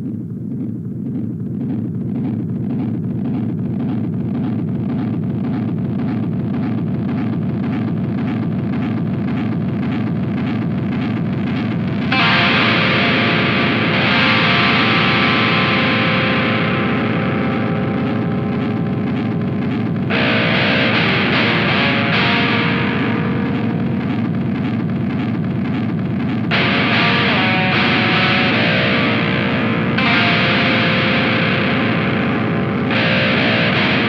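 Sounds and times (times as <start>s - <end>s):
metal song with distorted guitars: 9.0s - 34.0s.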